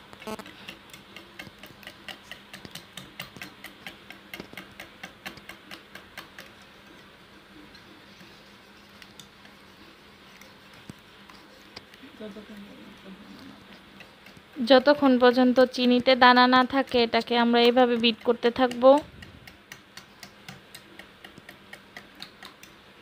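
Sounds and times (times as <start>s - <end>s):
whisk clicking against bowl: 0.4s - 6.7s, 13.6s - 22.8s.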